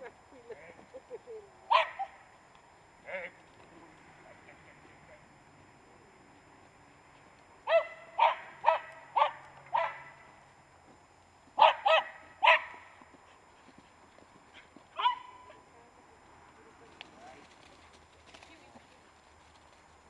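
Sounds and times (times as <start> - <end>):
small dog barking: 1.7 - 2.2, 7.7 - 10.2, 11.6 - 12.8, 15.0 - 15.6.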